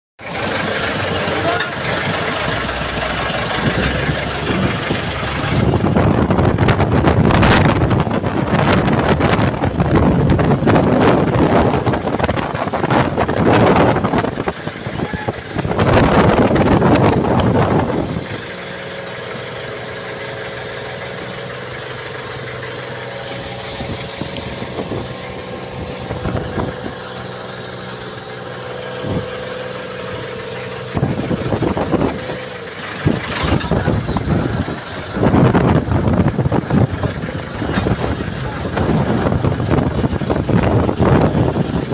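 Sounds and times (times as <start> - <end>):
boat engine running: 0.2 - 41.9
strong wind: 0.9 - 18.6, 23.4 - 27.6, 28.9 - 29.4, 30.0 - 41.9
waves crashing against boat: 29.0 - 41.9.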